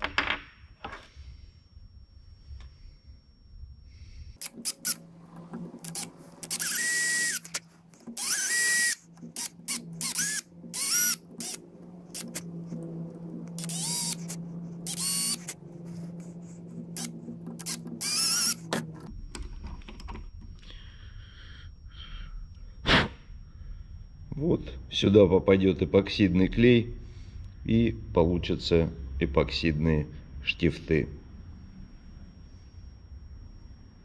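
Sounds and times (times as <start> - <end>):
electric drill whirring: 4.4 - 19.1.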